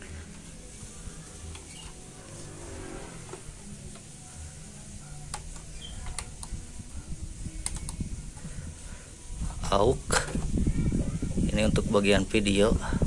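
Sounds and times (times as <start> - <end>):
stereo buttons clicking: 5.2 - 6.6, 7.6 - 8.0.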